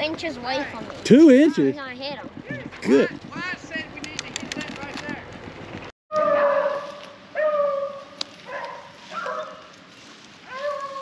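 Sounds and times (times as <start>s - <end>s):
beagles baying: 6.1s - 9.7s, 10.4s - 11.0s.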